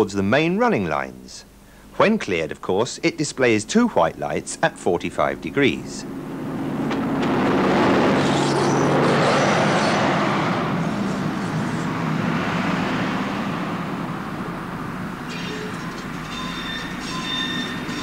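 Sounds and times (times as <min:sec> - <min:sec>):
train engine hum: 0:01.4 - 0:18.0
train wheel and rail noise: 0:13.8 - 0:18.0
faint high squeal: 0:15.3 - 0:18.0.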